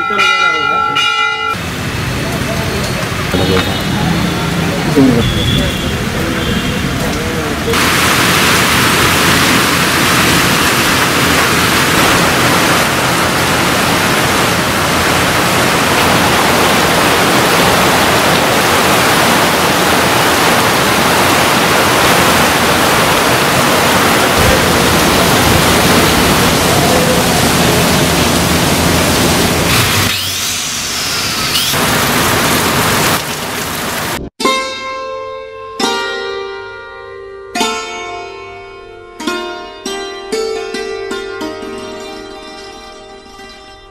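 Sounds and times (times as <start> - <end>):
rain falling steadily: 1.6 - 30.1, 31.6 - 34.3.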